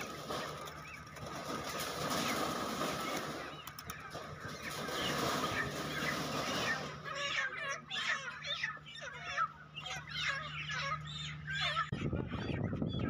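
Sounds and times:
chickens squawking and flapping: 0:00.0 - 0:13.0.

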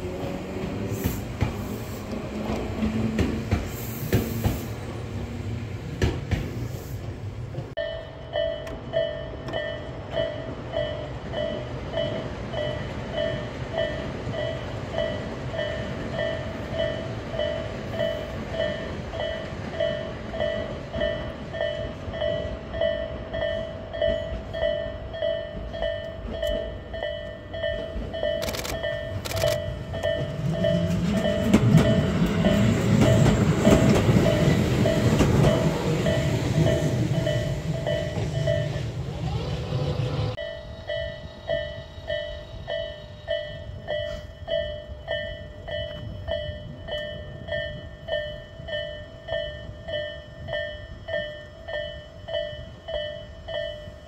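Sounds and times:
train wheels clicking on rails: 0:00.0 - 0:07.8, 0:08.4 - 0:39.0
train rumble: 0:00.0 - 0:54.0
railway crossing alarm ringing: 0:07.8 - 0:54.0.

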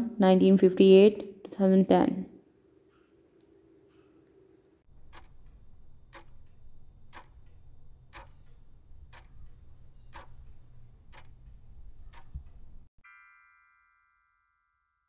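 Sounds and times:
clock ticking: 0:04.9 - 0:12.9.

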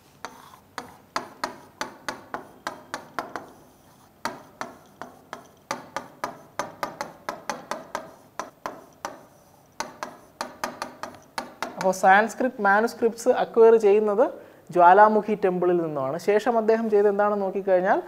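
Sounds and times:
marker tapping on whiteboard: 0:00.2 - 0:03.6, 0:04.2 - 0:12.0.

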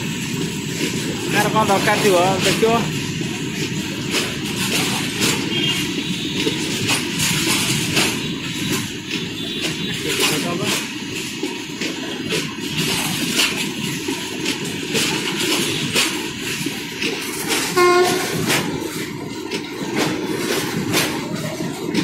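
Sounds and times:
train wheels rumbling on rails: 0:00.0 - 0:22.0
wheels clacking over rail joints: 0:00.0 - 0:22.0
train horn toot: 0:17.7 - 0:18.6.

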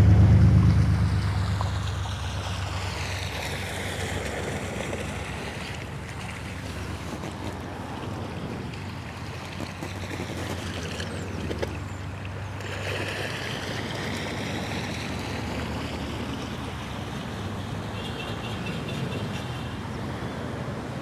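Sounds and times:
wind rumble on microphone: 0:00.0 - 0:06.0
river water flowing: 0:00.0 - 0:18.0.

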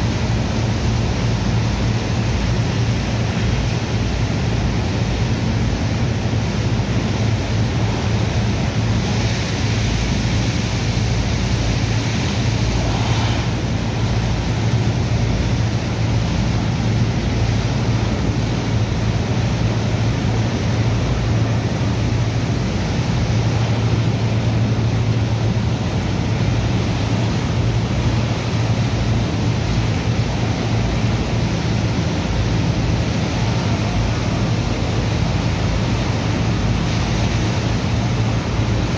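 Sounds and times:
pumping machinery drone: 0:00.0 - 0:38.9
water hose jet splashing: 0:08.8 - 0:16.5.

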